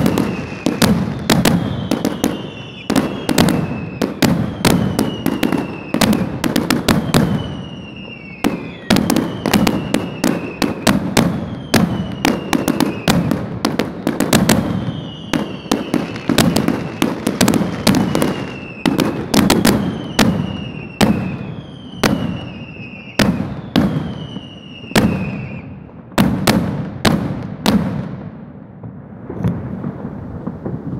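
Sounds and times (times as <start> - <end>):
high falling whistle: 0.0 - 6.0, 7.0 - 10.7
fireworks bangs: 0.0 - 30.9.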